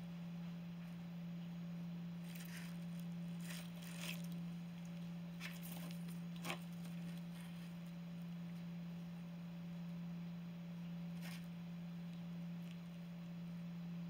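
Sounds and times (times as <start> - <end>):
steady low hum: 0.0 - 14.0
kitten tearing cardboard: 2.2 - 7.8, 11.1 - 11.5.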